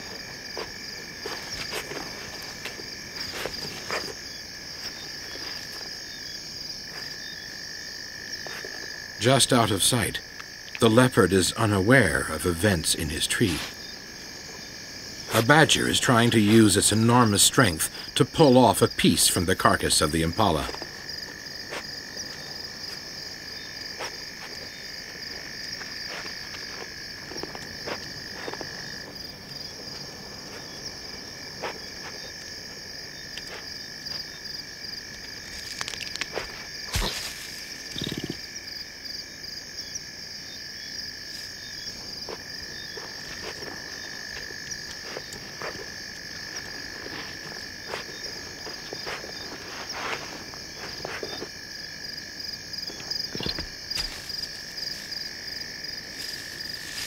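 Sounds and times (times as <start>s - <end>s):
frogs trilling: 0.0s - 57.0s
insects chirring: 0.0s - 57.0s
short snaps and cracks: 35.2s - 37.4s.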